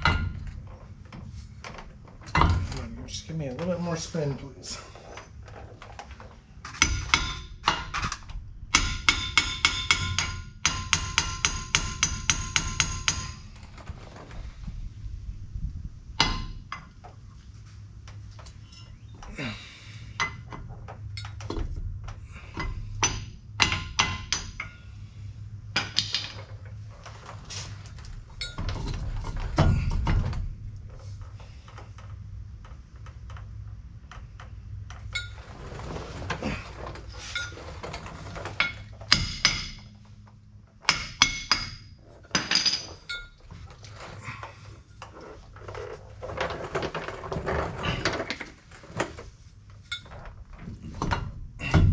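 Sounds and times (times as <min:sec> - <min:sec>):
metal parts clinking and clanking: 0:18.4 - 0:19.3, 0:20.2 - 0:25.0, 0:25.8 - 0:30.5, 0:34.9 - 0:40.1, 0:40.8 - 0:51.9
heavy metal knocks: 0:50.6 - 0:51.9.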